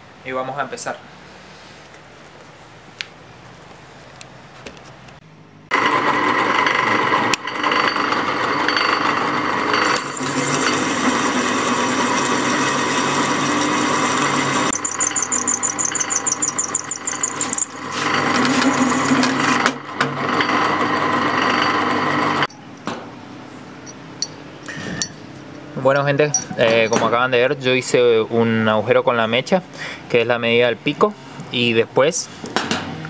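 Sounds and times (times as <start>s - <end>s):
electric drill whining: 9.8s - 19.6s
high-pitched squealing chatter: 14.7s - 19.5s.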